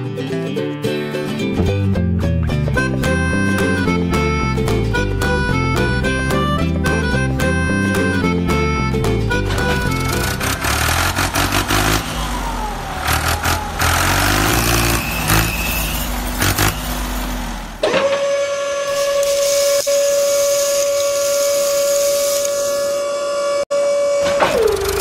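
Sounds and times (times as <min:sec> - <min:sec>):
background music: 0:00.0 - 0:12.0
small electric motor whining: 0:18.4 - 0:23.6.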